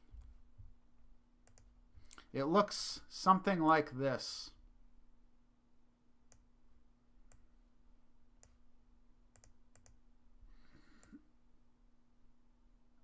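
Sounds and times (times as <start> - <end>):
low steady hum: 0.0 - 13.0
computer mouse clicks: 1.4 - 2.3, 6.3 - 6.5, 9.3 - 10.0.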